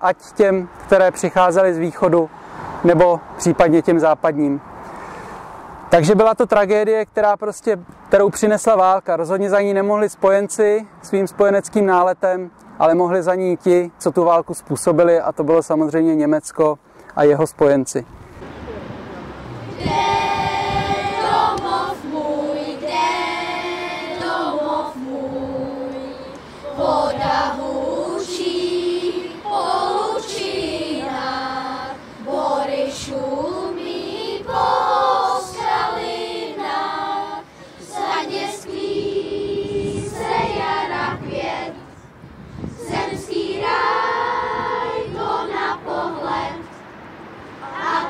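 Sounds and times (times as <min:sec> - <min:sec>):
children's choir singing: 0:19.7 - 0:42.0, 0:42.8 - 0:46.7, 0:47.6 - 0:48.0.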